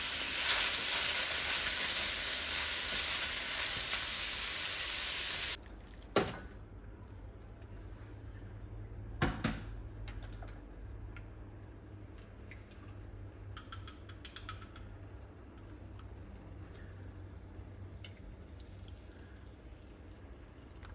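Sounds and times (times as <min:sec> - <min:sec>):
low steady hum: 0:05.4 - 0:20.9.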